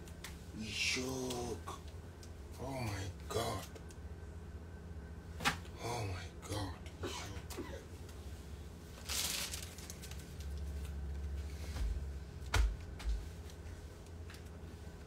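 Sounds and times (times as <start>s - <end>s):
clothes rustling: 8.9s - 12.1s.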